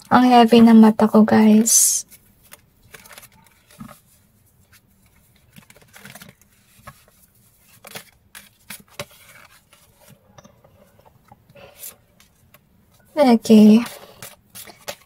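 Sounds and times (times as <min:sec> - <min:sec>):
cards being shuffled: 0:02.0 - 0:10.2, 0:13.4 - 0:15.0.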